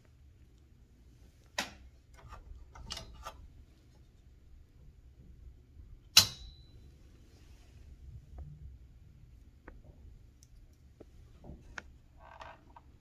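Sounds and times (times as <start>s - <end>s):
metallic clack with ring: 6.2s - 6.8s.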